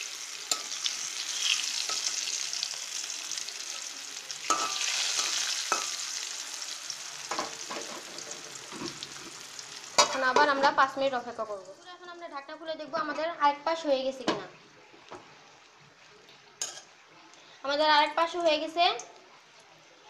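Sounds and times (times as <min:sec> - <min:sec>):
pumpkin slices sizzling in oil: 0:00.0 - 0:12.4.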